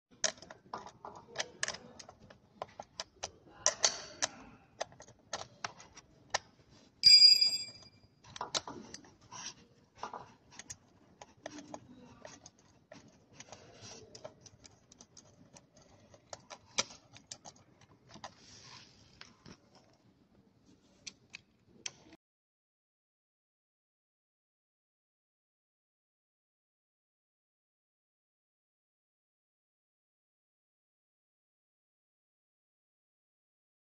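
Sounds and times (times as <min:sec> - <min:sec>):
clicks and taps of plastic parts: 0:00.1 - 0:06.6, 0:08.2 - 0:18.4
short metallic ring: 0:07.0 - 0:08.0.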